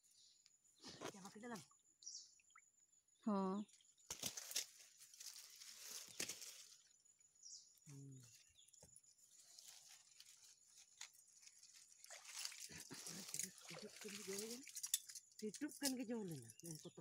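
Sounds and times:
rustling grass and leaves: 0:04.0 - 0:07.1, 0:07.9 - 0:17.0.

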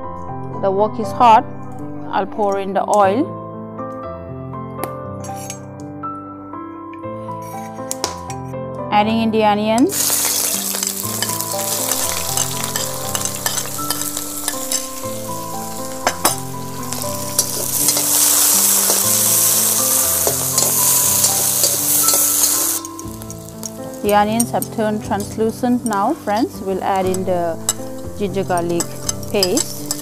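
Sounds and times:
soft background music: 0:00.0 - 0:30.0
metal spatula scraping wok: 0:05.2 - 0:05.6, 0:09.9 - 0:25.0, 0:27.6 - 0:30.0
onions sizzling in hot oil: 0:09.9 - 0:30.0.

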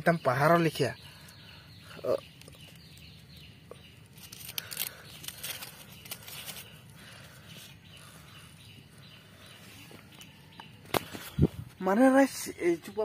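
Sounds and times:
faint chirping: 0:00.0 - 0:13.0
dry leaves and twigs rustling: 0:02.1 - 0:08.2, 0:09.8 - 0:12.2.

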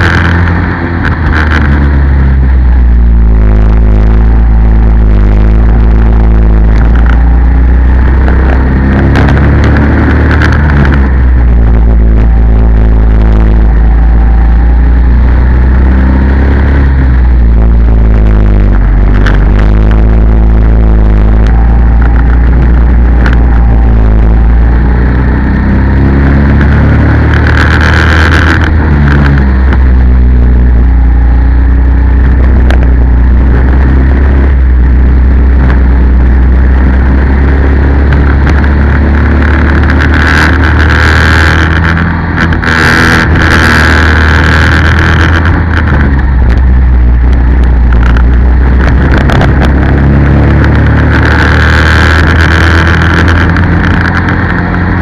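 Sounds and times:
go-kart engine running hard: 0:00.0 - 0:55.0.

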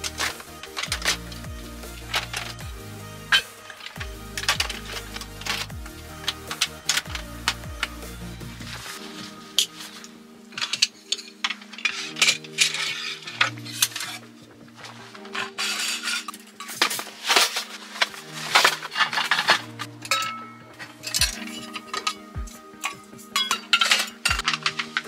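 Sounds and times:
soft background music: 0:00.0 - 0:25.0
fabric rustling: 0:03.3 - 0:25.0
metal cookware clinking: 0:15.2 - 0:25.0.

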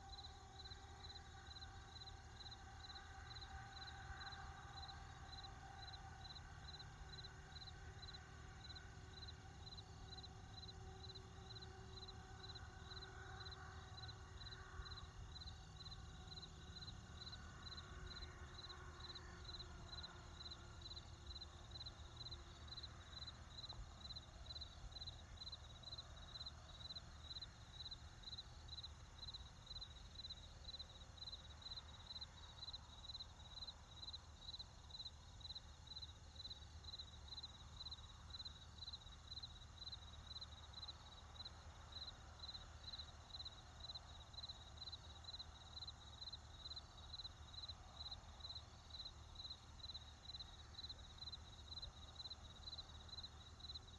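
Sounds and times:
faint crickets chirping: 0:00.0 - 0:53.9.

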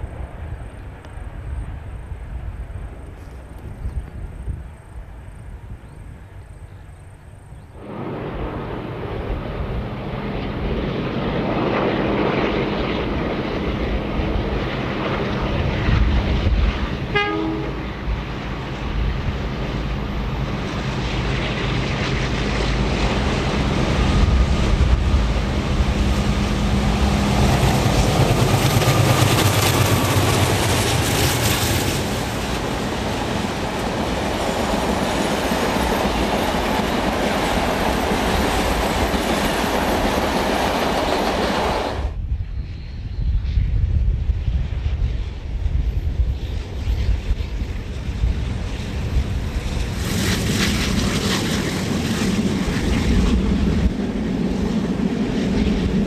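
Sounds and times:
diesel locomotive engines running: 0:00.0 - 0:56.0.

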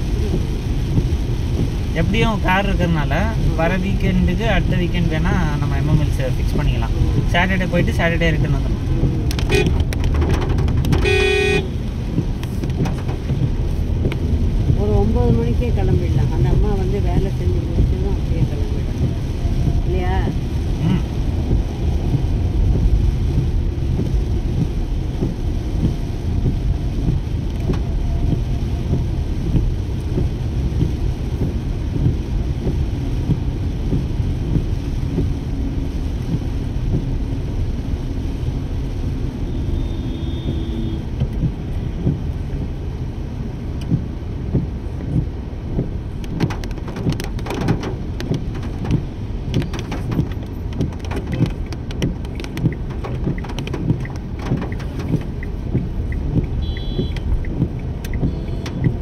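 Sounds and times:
car engine and road rumble: 0:00.0 - 0:59.0
rain on a car: 0:00.0 - 0:59.0
sharp clicks: 0:46.2 - 0:59.0.

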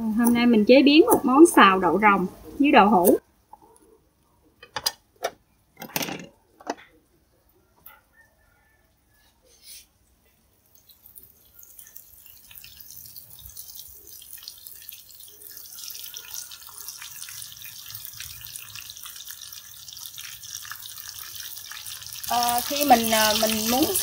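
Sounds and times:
tofu sizzling in hot oil: 0:10.6 - 0:24.0.

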